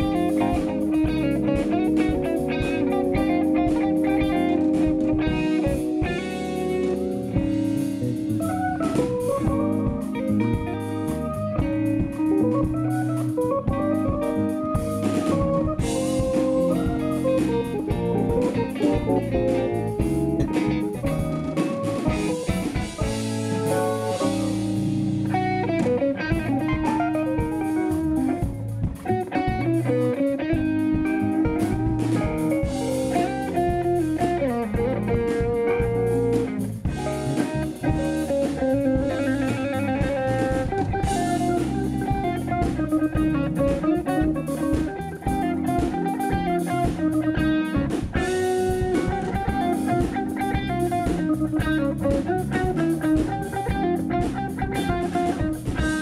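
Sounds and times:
bass guitar: 0.0s - 56.0s
drum kit: 0.0s - 56.0s
electric guitar: 0.0s - 56.0s
keyboard: 0.0s - 56.0s.

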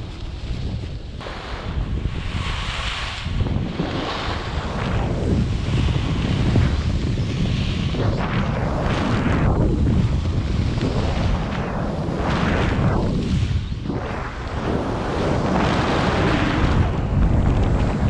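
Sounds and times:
skis scraping over snow: 0.0s - 18.0s
wind buffeting microphone: 0.0s - 18.0s.

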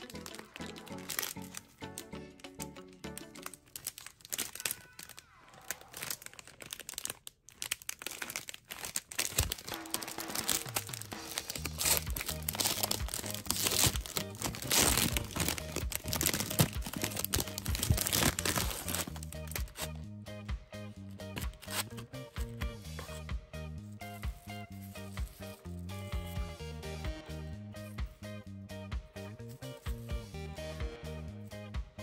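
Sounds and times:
background music: 0.0s - 5.1s, 9.1s - 32.0s
plastic wrapper crinkling: 0.0s - 19.9s, 21.4s - 22.0s.

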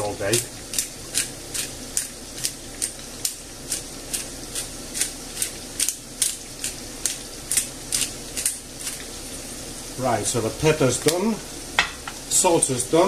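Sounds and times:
pepper grinder crunching: 0.7s - 9.0s.

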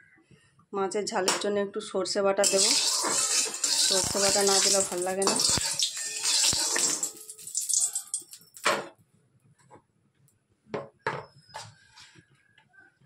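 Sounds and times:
hot oil sizzling in pan: 2.4s - 8.6s.

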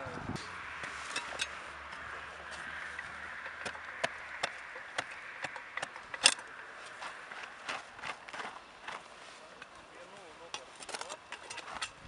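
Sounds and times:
hand trowel scraping into earth: 0.4s - 1.8s.

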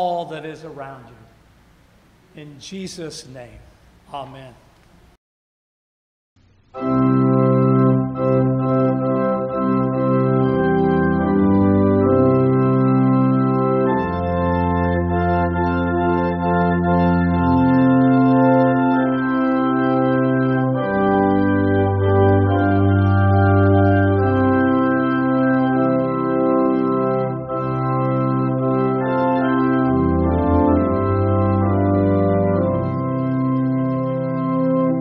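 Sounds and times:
organ playing slow chords: 0.0s - 4.6s, 6.4s - 35.0s.

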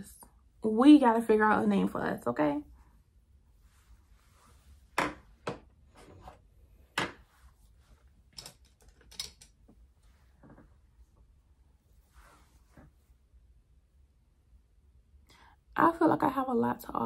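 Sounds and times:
small items clicking on tabletop: 8.3s - 9.6s.

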